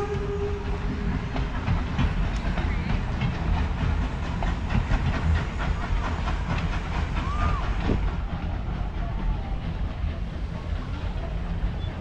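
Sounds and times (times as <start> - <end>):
locomotive low rumble: 0.0 - 12.0
steam hissing: 0.0 - 12.0
train cars rattling on track: 0.0 - 12.0.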